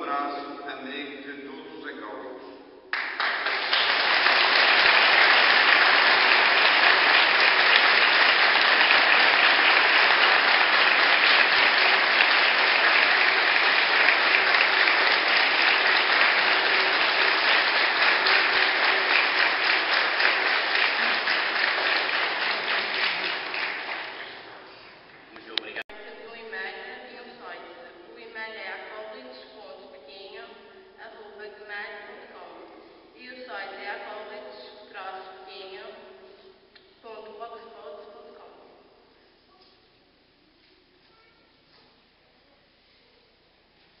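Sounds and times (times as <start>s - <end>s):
crowd applauding: 2.9s - 25.8s.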